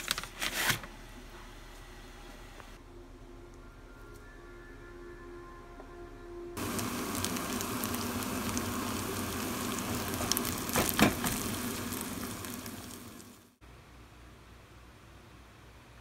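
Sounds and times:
rice sizzling in a hot pan: 6.6s - 13.6s.

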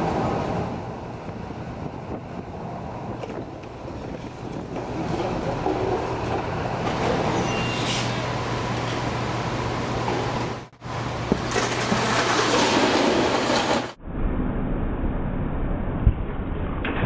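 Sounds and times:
falling masonry rumble and clatter: 1.7s - 7.4s, 10.0s - 14.0s.

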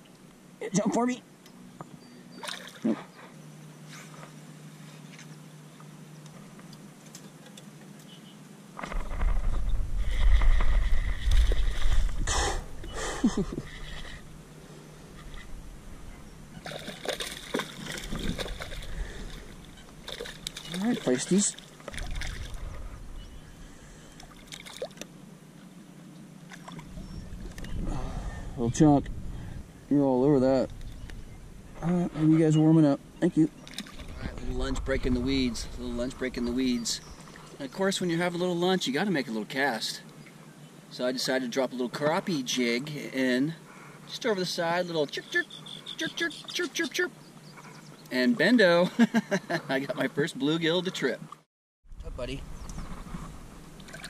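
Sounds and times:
water splashing and trickling: 2.4s - 3.0s, 16.6s - 22.9s, 24.2s - 25.1s, 26.4s - 27.7s, 33.6s - 38.0s, 53.8s - 54.0s
fish splashing into water: 16.6s - 20.8s, 21.5s - 22.6s, 24.2s - 25.0s
low rumble: 34.0s - 37.2s.

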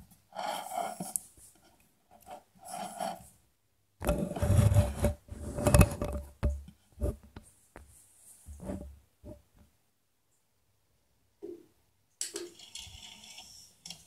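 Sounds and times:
speakers scraping on wooden table: 2.2s - 3.3s, 4.0s - 6.4s, 12.5s - 14.0s.

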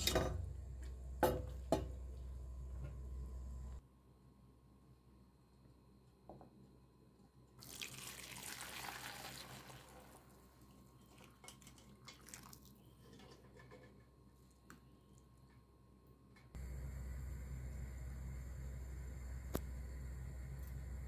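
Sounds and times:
tap water running and splashing: 7.6s - 10.1s.

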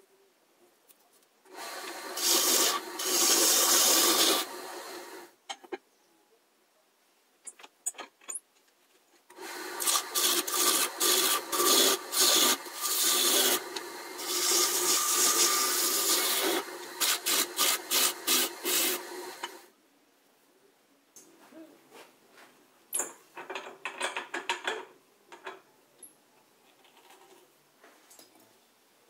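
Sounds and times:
gouge scraping wood on lathe: 1.8s - 4.6s, 9.8s - 19.6s.

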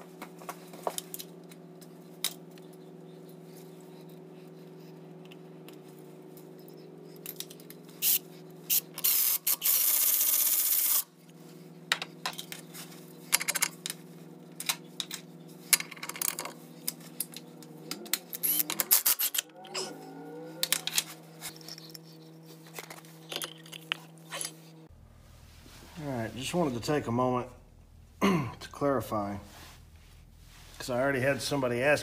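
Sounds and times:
steady low hum: 0.0s - 32.0s
cordless ratchet whirring: 8.0s - 11.1s, 18.0s - 19.5s.

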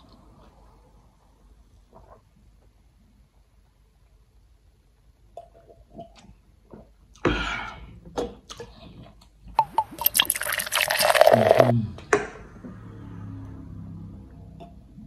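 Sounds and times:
soda fizzing into a glass: 9.6s - 11.7s
swallowing gulps: 9.6s - 11.8s.

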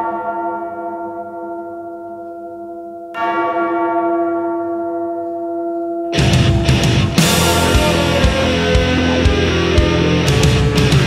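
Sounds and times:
deep bell tolling: 0.0s - 11.0s.

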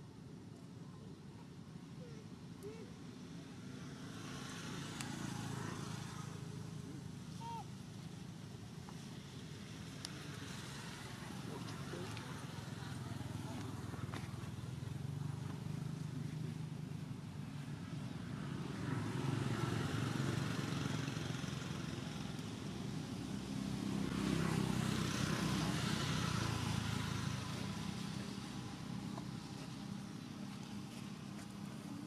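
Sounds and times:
traffic engine rumble: 4.6s - 32.0s.

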